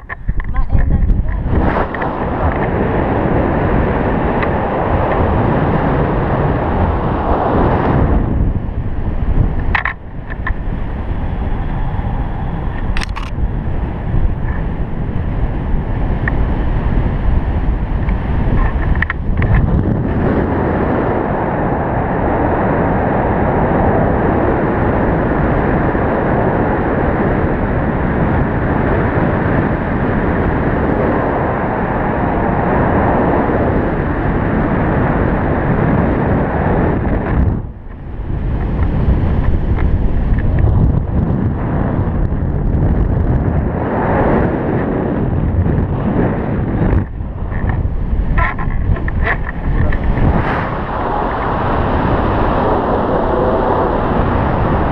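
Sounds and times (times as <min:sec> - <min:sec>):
wind buffeting microphone: 0:00.0 - 0:54.9.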